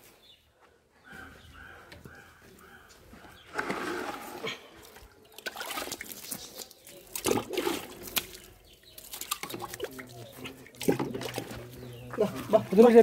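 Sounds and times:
water dripping: 4.8s - 13.0s.

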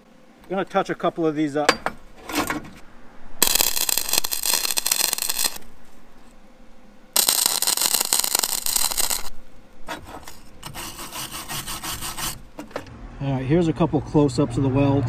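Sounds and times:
arc welding crackle: 3.4s - 5.8s, 7.1s - 12.6s.

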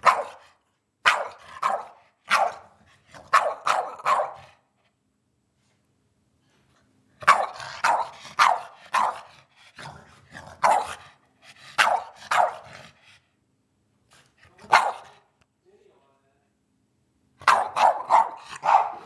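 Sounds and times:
dog barking: 0.0s - 4.6s, 7.2s - 9.4s, 10.6s - 11.1s, 11.7s - 12.8s, 14.6s - 15.3s, 17.4s - 19.0s.

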